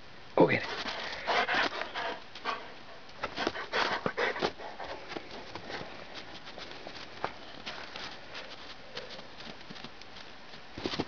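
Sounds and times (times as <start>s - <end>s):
dog crunching through snow: 3.3s - 11.0s.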